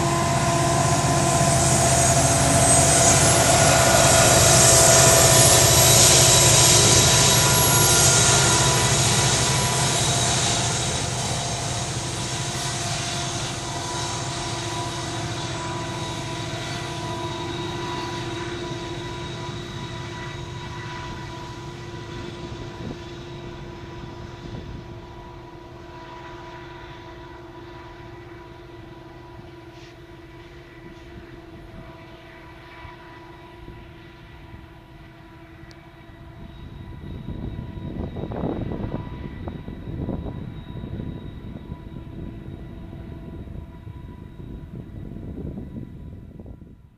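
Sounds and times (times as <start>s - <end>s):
loud rough uneven noise: 0.0s - 15.4s
diesel locomotive engine drone: 0.0s - 46.9s.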